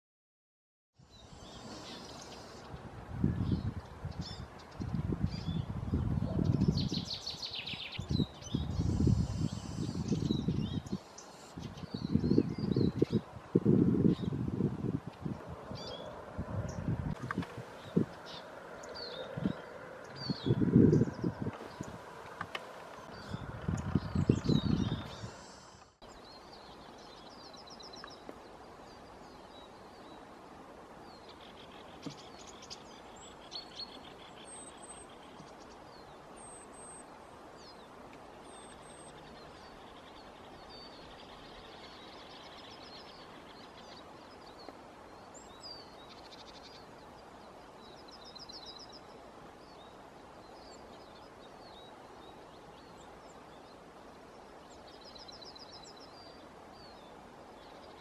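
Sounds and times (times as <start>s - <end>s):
songbirds calling: 1.0s - 58.0s
outdoor hiss: 25.2s - 27.4s.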